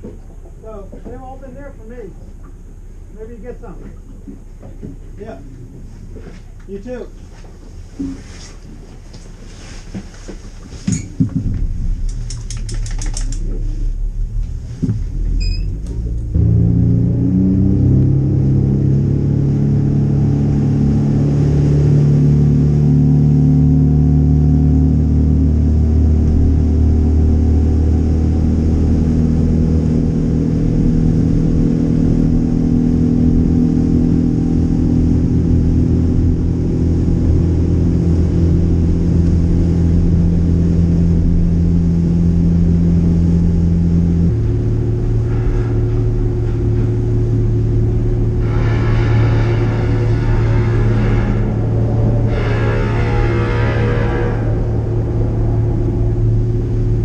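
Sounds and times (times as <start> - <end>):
clicks: 12.0 - 13.6
outboard engine running: 13.0 - 57.0.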